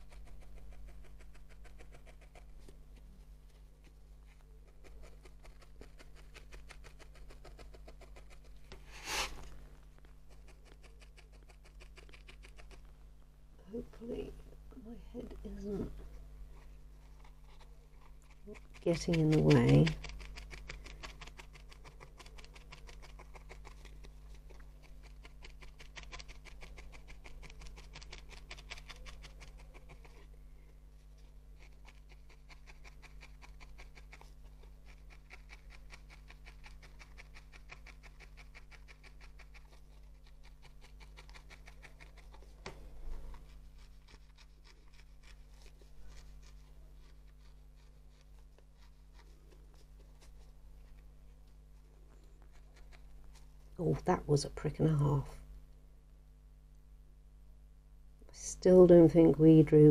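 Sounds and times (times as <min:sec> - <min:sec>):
felting needle ticking through wool: 0:00.0 - 0:03.0, 0:03.8 - 0:08.8, 0:17.2 - 0:30.3, 0:31.2 - 0:51.0
steady low hum: 0:00.0 - 0:59.9.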